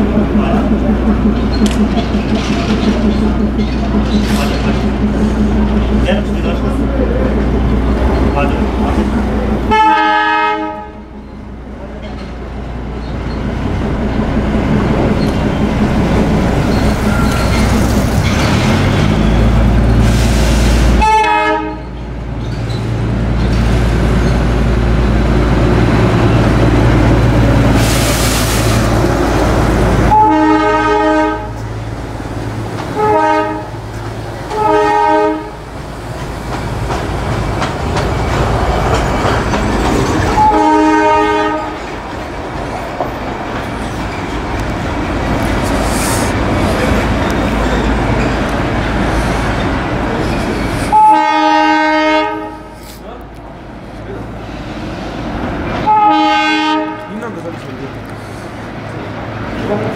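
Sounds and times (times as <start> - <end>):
diesel locomotive engine drone: 0.0 - 59.9
train horn blasts: 9.7 - 11.1, 21.0 - 22.0, 30.1 - 31.6, 33.0 - 33.8, 34.5 - 35.6, 40.4 - 41.8, 50.9 - 52.8, 55.8 - 57.1.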